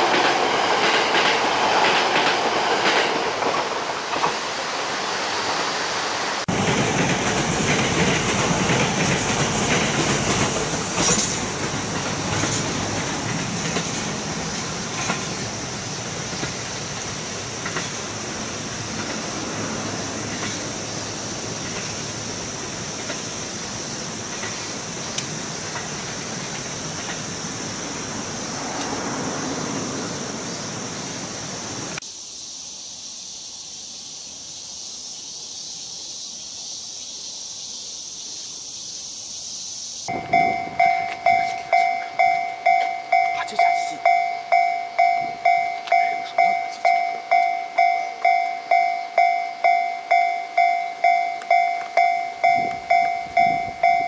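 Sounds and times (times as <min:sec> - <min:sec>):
train approaching rush: 0:00.0 - 0:54.0
railroad crossing alarm dings: 0:06.5 - 0:32.0, 0:40.1 - 0:54.0.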